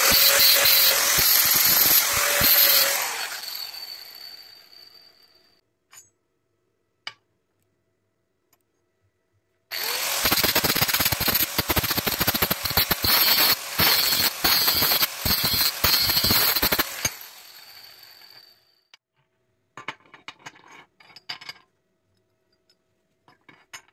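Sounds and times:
angle grinder grinding metal: 0:00.0 - 0:05.1, 0:09.7 - 0:18.6
grinder winding down whine: 0:00.0 - 0:05.2, 0:09.7 - 0:18.6.

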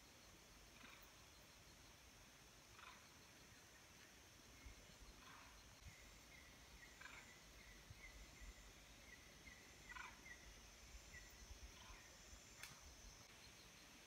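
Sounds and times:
bird chirping: 0:00.0 - 0:14.0
insect hiss: 0:00.0 - 0:14.0
sharp tick: 0:12.6 - 0:12.8.

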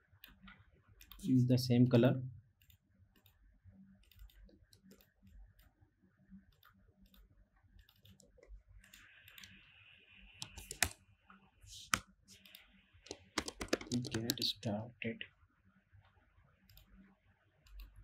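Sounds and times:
computer mouse clicks: 0:00.2 - 0:01.3, 0:02.6 - 0:03.4, 0:04.0 - 0:05.8, 0:06.5 - 0:09.6, 0:10.4 - 0:11.0, 0:11.8 - 0:14.5, 0:16.7 - 0:16.9, 0:17.6 - 0:18.0.

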